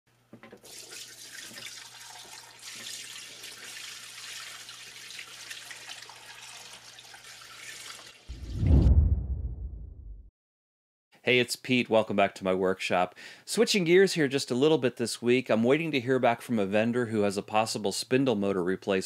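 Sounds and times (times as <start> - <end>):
liquid splashing into plastic tub: 0.4 - 8.1
loud deep boom: 8.3 - 10.3.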